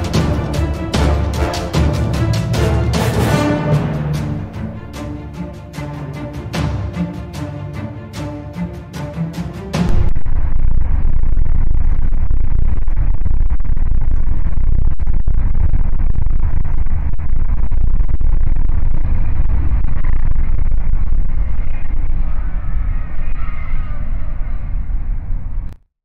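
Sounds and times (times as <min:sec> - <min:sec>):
background music: 0:00.0 - 0:10.1.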